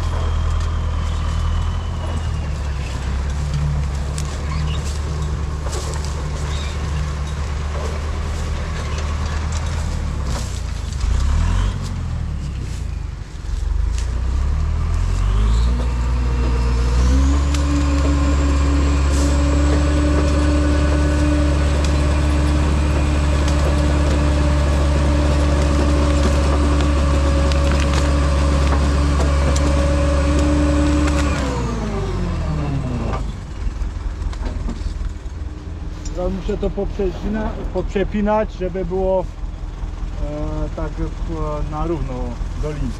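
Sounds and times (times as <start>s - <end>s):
diesel engine idling and revving: 0.0s - 42.9s
winch dragging logs on cable: 14.9s - 32.1s, 35.9s - 39.2s.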